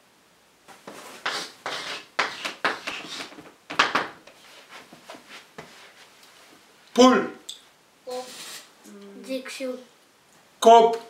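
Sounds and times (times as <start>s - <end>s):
chalk scratching on blackboard: 0.9s - 3.4s.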